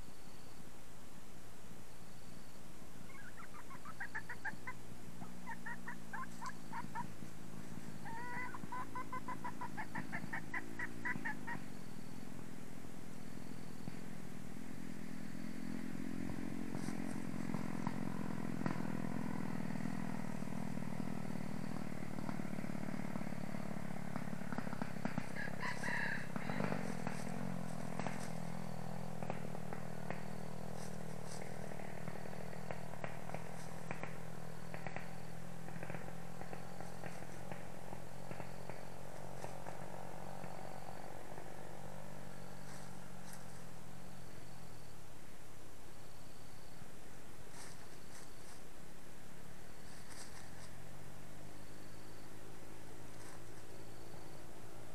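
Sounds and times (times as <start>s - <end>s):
hen clucking: 3.1s - 7.2s, 8.0s - 11.6s.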